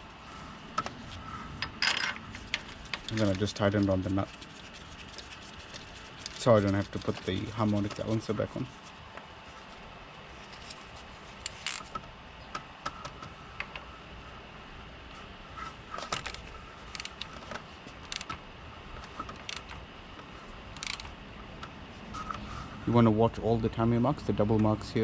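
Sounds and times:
ratchet and socket clicks: 16.2s - 17.3s, 18.1s - 18.3s, 20.8s - 21.1s.

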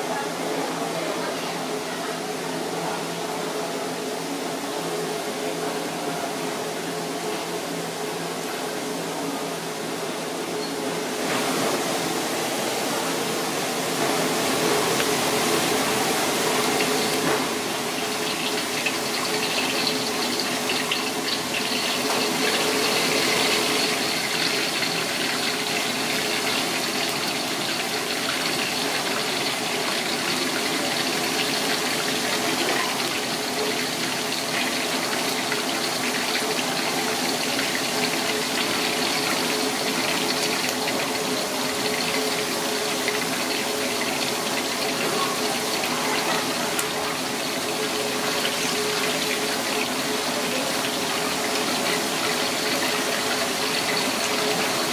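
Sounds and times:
fish sizzling in hot oil: 13.9s - 54.9s.

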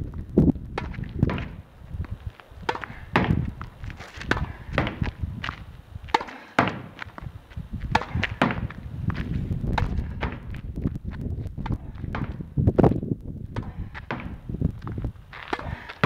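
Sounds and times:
ball bouncing on asphalt: 0.0s - 16.0s
racket hitting tennis ball: 2.6s - 3.4s, 4.1s - 5.2s, 6.1s - 7.1s, 7.9s - 8.8s.

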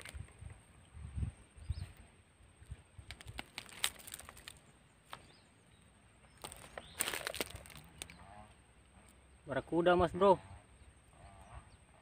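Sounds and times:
fish handling clicks and rustles: 3.0s - 5.3s, 6.4s - 8.1s.

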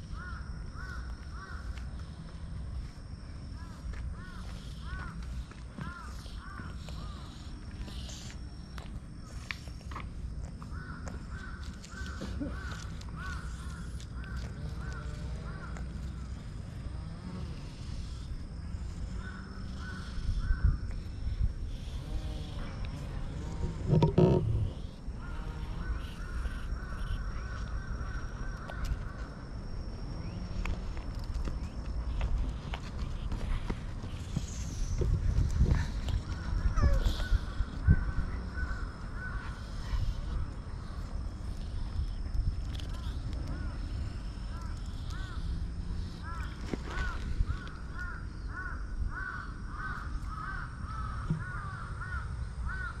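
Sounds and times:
crow cawing: 0.1s - 1.8s, 3.6s - 5.2s, 5.8s - 7.2s, 10.7s - 15.8s, 25.2s - 29.2s, 36.3s - 40.0s, 44.5s - 45.5s, 46.2s - 53.0s.

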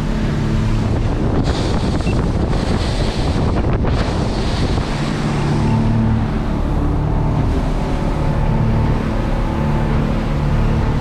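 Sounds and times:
boat engines droning: 0.0s - 11.0s.

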